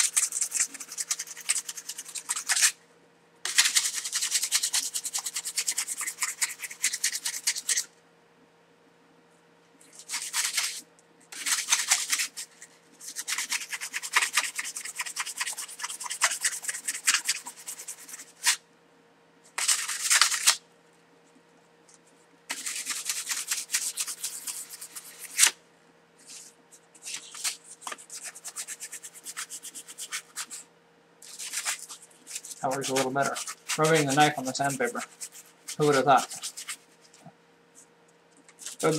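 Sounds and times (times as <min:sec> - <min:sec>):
sandpaper rasping on metal knife: 0:00.0 - 0:02.8, 0:03.5 - 0:07.9, 0:09.9 - 0:18.6, 0:22.5 - 0:25.5, 0:27.0 - 0:30.6, 0:31.2 - 0:36.8, 0:38.6 - 0:38.9.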